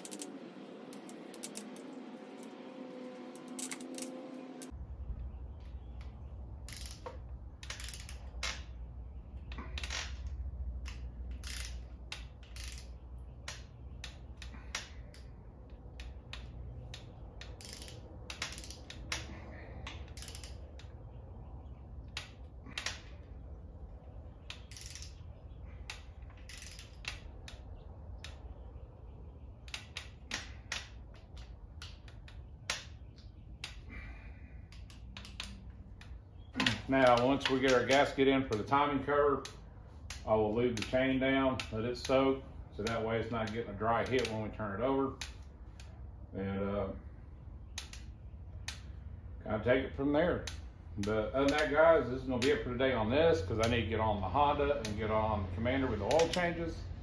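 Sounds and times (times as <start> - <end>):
ratchet wrench clicking: 0.0 - 1.9, 6.0 - 8.7, 9.7 - 21.0, 24.4 - 28.5, 34.6 - 38.7
low steady hum: 0.0 - 57.0.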